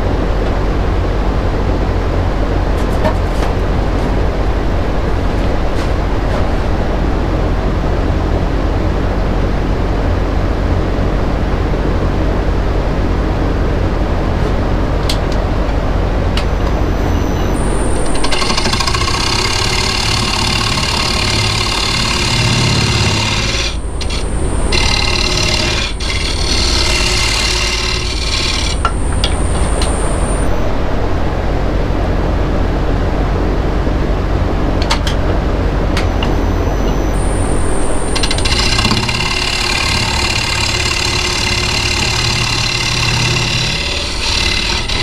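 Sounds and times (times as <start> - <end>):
wood lathe humming: 0.0 - 45.0
tool scraping wood with whine: 2.6 - 8.6, 15.3 - 31.6, 34.8 - 45.0.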